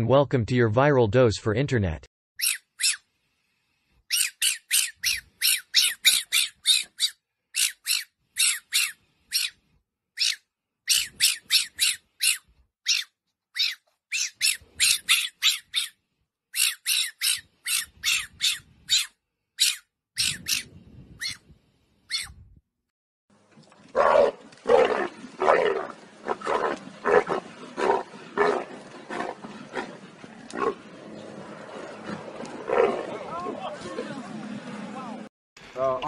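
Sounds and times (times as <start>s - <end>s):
fox squeaking calls: 2.4s - 3.0s, 4.1s - 9.6s, 10.2s - 16.0s, 16.6s - 21.4s, 22.1s - 22.4s.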